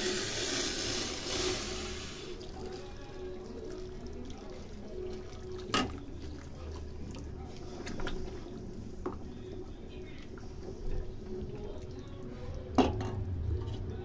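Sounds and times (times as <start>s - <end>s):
hot water pouring into pan: 0.0s - 6.7s
curry bubbling: 0.2s - 14.0s.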